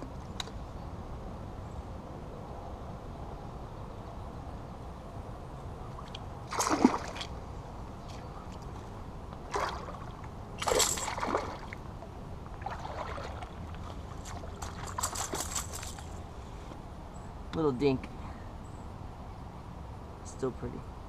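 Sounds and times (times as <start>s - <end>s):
fish splashing at water surface: 6.5s - 7.4s, 9.5s - 11.8s, 12.6s - 16.0s.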